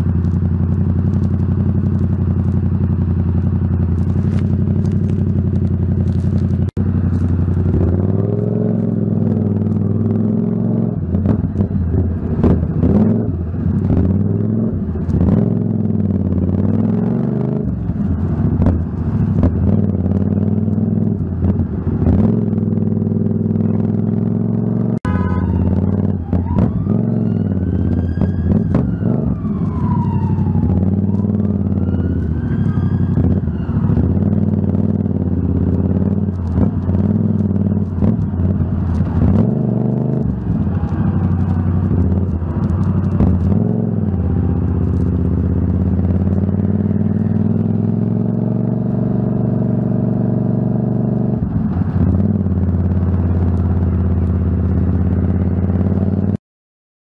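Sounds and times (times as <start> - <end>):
motorcycle engine at low revs: 0.0 - 56.4
police siren wailing: 25.1 - 35.2, 40.0 - 46.1.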